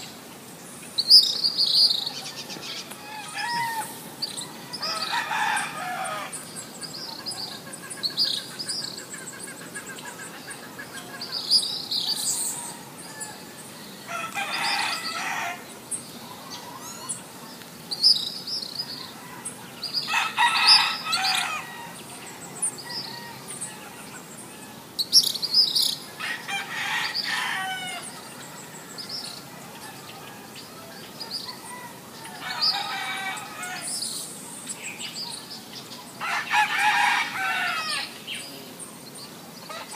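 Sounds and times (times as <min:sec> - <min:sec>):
small birds chirping: 0:00.0 - 0:39.9
rooster crowing: 0:02.1 - 0:06.4, 0:12.0 - 0:15.7, 0:19.0 - 0:24.8, 0:26.2 - 0:34.0, 0:36.2 - 0:38.2.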